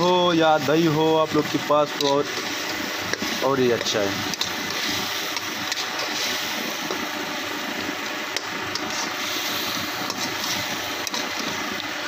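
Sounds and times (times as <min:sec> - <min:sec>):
curry sizzling and bubbling: 0:00.0 - 0:12.0.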